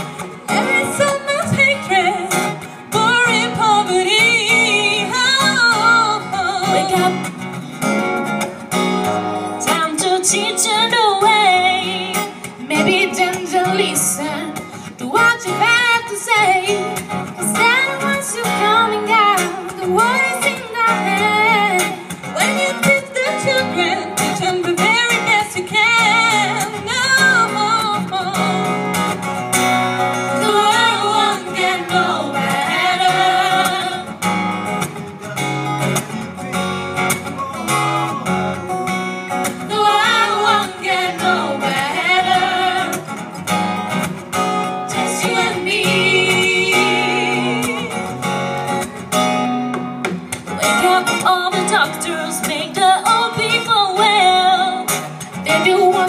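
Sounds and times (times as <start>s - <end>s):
strummed acoustic guitar: 0.0s - 56.0s
women singing together: 9.6s - 28.7s, 30.3s - 34.2s, 39.6s - 43.3s, 44.8s - 48.1s, 50.7s - 54.9s, 55.5s - 56.0s.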